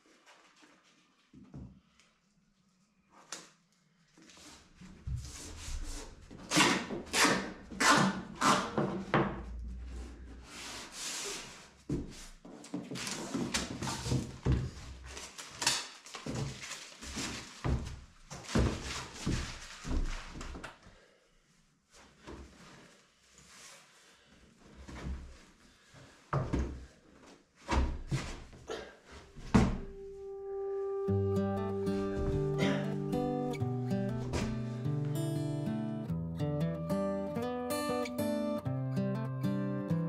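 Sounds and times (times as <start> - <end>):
masking tape tearing off roll: 6.4 - 8.8.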